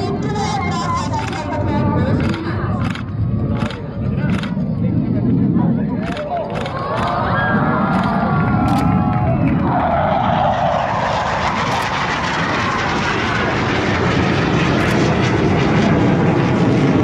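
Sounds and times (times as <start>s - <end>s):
falling jet whine: 0.0s - 17.0s
jet engines roaring: 0.0s - 17.0s.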